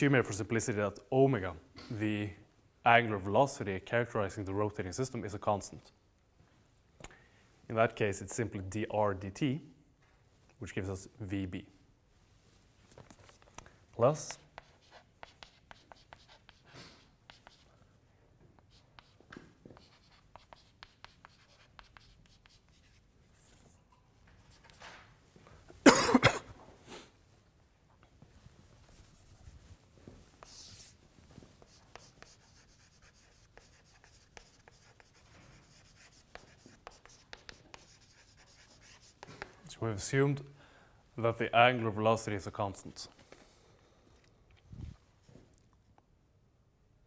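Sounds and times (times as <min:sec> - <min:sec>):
chalk writing on blackboard: 0:14.1 - 0:17.7, 0:18.6 - 0:23.1, 0:24.4 - 0:24.9, 0:28.9 - 0:29.6, 0:30.4 - 0:31.0, 0:31.6 - 0:39.6
person coughing: 0:25.8 - 0:26.6.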